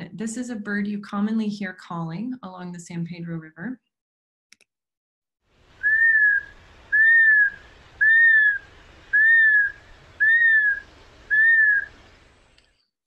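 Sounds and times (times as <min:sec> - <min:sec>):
hawk whistled calls: 0:05.8 - 0:11.9.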